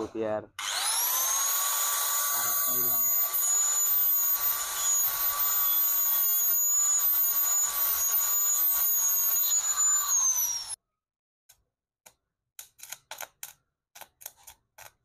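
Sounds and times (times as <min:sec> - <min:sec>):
angle grinder whining: 0:00.6 - 0:10.8.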